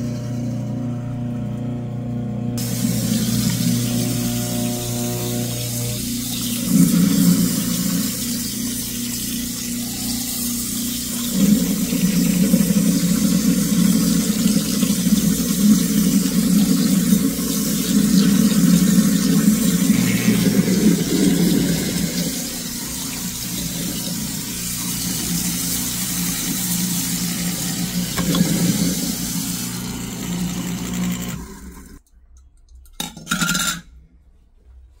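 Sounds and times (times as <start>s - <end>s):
faucet running into sink: 2.6s - 32.0s.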